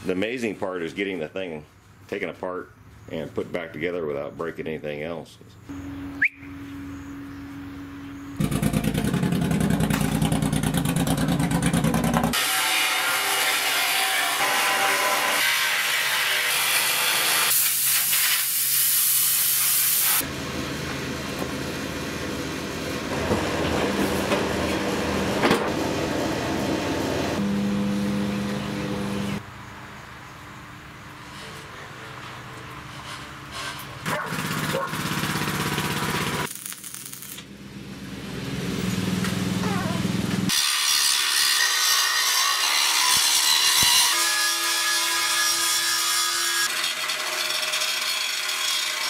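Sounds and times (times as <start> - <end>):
dense rattling buzz: 7.7 - 12.4.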